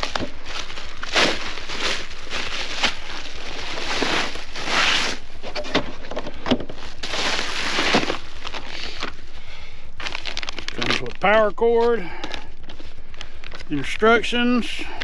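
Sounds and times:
bubble-wrap bag rustling: 0.0 - 11.3.

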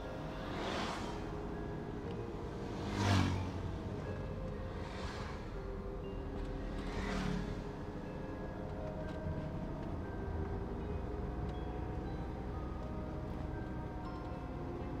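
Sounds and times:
car driving road noise: 0.0 - 15.0
vehicle swishing past: 0.2 - 1.9, 2.5 - 4.0, 4.7 - 5.7, 6.6 - 7.8.

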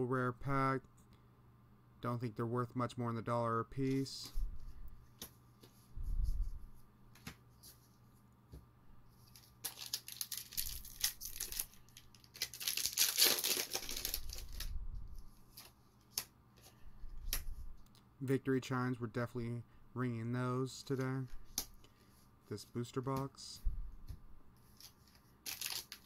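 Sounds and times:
foil wrapper tearing and crinkling: 9.3 - 14.7, 24.8 - 26.0.

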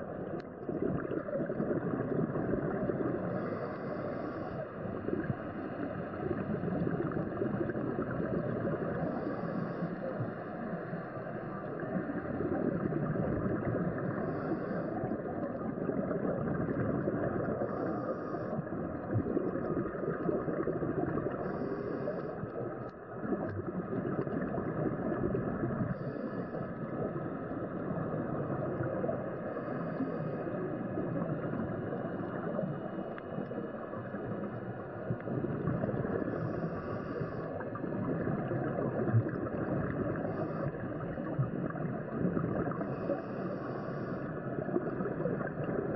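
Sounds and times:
underwater rushing and bubbling: 0.0 - 45.9
regulator breathing hiss: 3.3 - 4.8, 9.0 - 11.2, 14.0 - 15.1, 17.6 - 18.7, 21.4 - 22.5, 25.9 - 26.8, 29.5 - 30.6, 36.3 - 37.6, 42.7 - 44.3.

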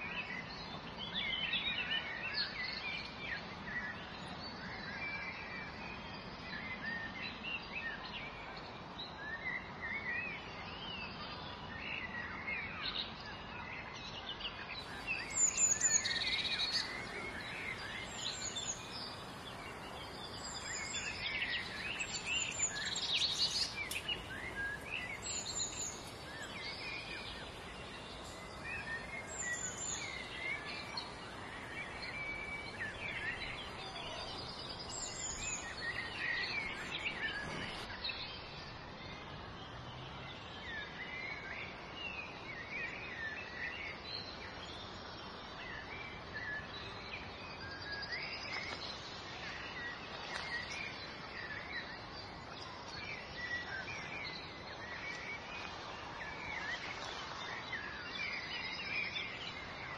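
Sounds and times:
songbirds chirping and warbling: 0.0 - 59.9
steady outdoor hiss: 0.0 - 59.9.

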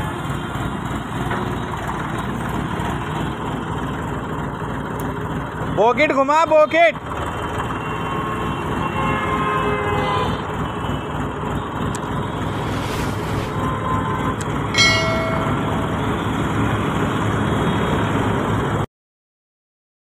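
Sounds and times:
tractor engine running: 0.0 - 5.8, 10.4 - 18.8
road traffic: 0.0 - 18.9.

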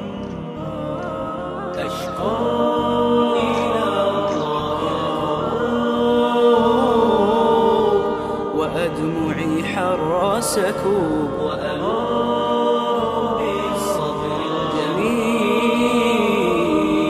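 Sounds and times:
devotional song layered voices: 0.0 - 17.0.

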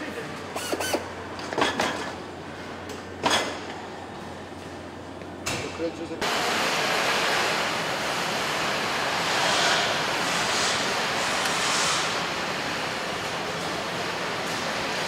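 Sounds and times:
machinery hiss in factory hall: 6.2 - 15.0.

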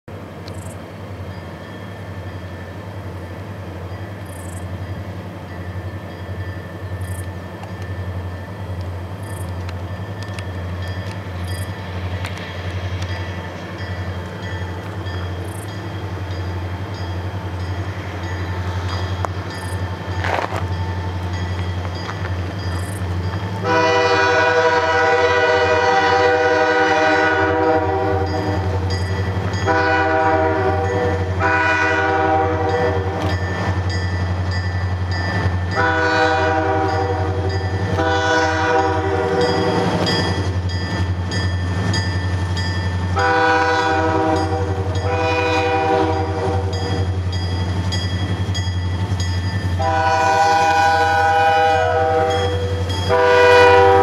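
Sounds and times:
diesel locomotive rumble: 0.1 - 54.0
locomotive air horn chord: 23.6 - 28.8, 29.7 - 33.3, 35.8 - 39.9, 43.2 - 46.8, 49.8 - 54.0.

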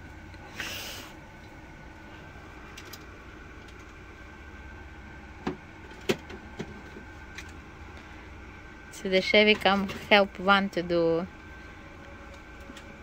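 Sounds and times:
low room hum: 0.0 - 13.0
short hiss: 0.5 - 1.2.

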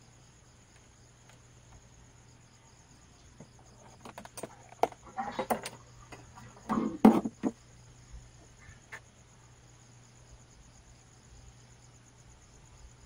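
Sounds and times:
crickets chirring: 0.0 - 13.0
handling clicks and knocks: 3.4 - 7.6.

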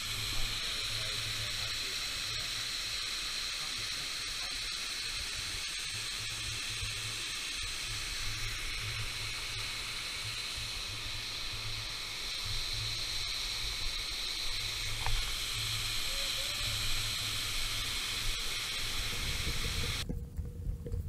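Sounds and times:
waterfall over rock: 0.0 - 20.0
low uneven rumble: 8.3 - 21.0.

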